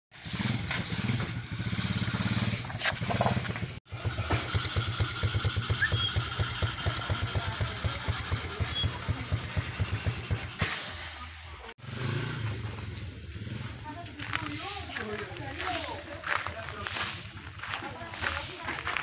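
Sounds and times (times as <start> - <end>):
small engine idling: 0.2 - 10.6.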